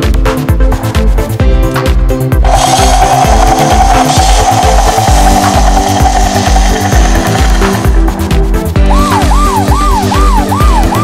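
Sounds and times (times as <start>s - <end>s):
background music with steady beat: 0.0s - 11.0s
toy helicopter rotor buzzing: 2.4s - 8.2s.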